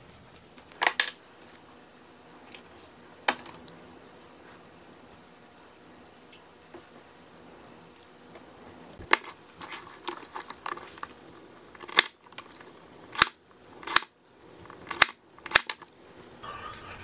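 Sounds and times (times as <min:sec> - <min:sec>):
plastic sheet rustling: 0:09.0 - 0:11.2.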